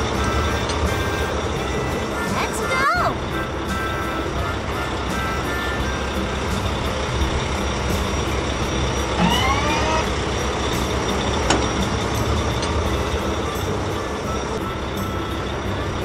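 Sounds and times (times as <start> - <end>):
diesel engine running: 0.0 - 16.0
short rising whine: 5.1 - 15.8.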